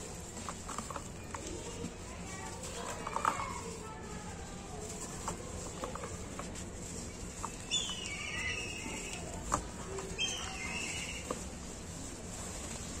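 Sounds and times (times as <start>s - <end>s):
high chirping calls: 7.5s - 9.2s, 10.1s - 11.3s.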